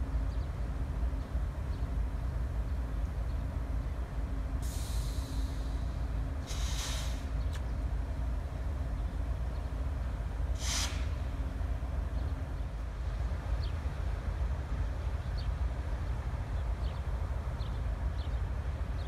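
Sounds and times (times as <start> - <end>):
diesel locomotive idling: 0.0 - 19.0
compressed air hissing: 4.6 - 7.3, 10.6 - 11.2.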